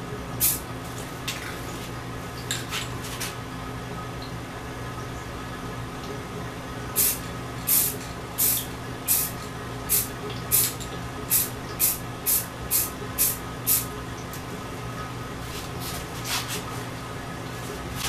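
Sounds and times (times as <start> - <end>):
spray paint can hissing: 7.0 - 9.3, 9.9 - 13.8.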